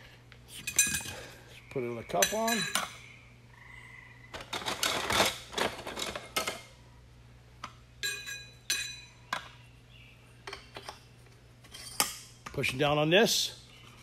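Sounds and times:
metal pump cups clinking: 0:00.6 - 0:01.3, 0:02.1 - 0:03.0, 0:08.0 - 0:09.2.

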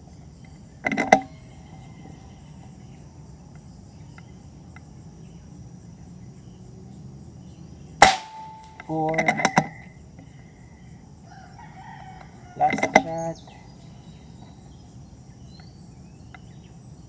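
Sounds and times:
insects chirring: 0:00.0 - 0:17.0
target ringing: 0:08.0 - 0:09.8.

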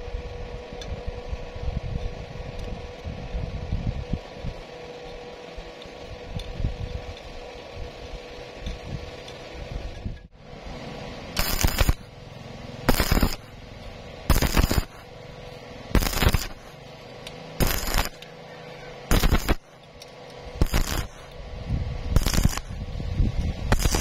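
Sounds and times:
welding arc crackling: 0:11.3 - 0:12.2, 0:12.8 - 0:18.2, 0:19.0 - 0:24.0.

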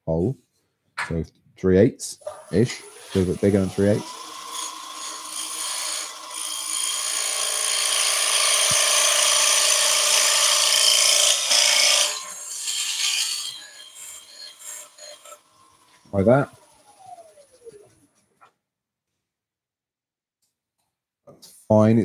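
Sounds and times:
lathe tool scraping wood: 0:02.2 - 0:18.0.

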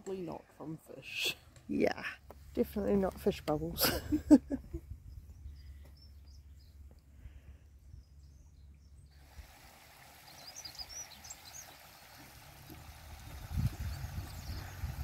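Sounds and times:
wide hiss: 0:09.2 - 0:15.0
high bird chirps: 0:10.2 - 0:11.9.

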